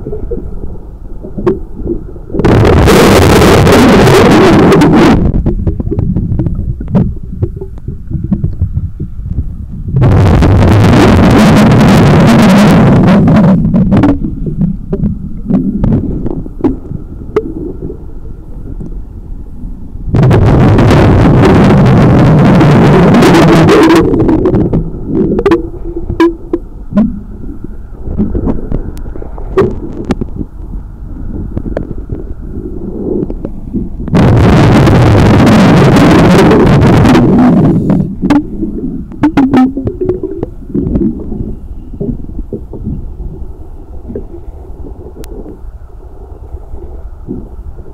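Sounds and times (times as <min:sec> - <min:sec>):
low underwater rumble: 0:00.0 - 0:47.9
small underwater clicks: 0:05.2 - 0:09.5, 0:13.3 - 0:19.0, 0:24.0 - 0:32.4, 0:33.2 - 0:34.2, 0:44.0 - 0:45.7
rush of exhaled bubbles: 0:20.1 - 0:47.9.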